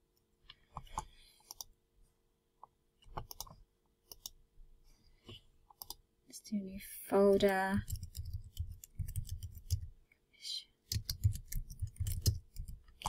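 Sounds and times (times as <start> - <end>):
computer mouse clicks: 0.4 - 1.8, 2.6 - 4.4, 5.3 - 6.0, 7.8 - 9.9, 10.9 - 13.0.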